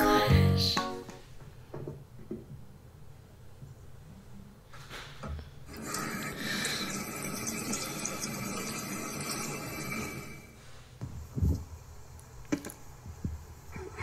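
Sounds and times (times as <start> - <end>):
sink tap running: 5.7 - 10.4.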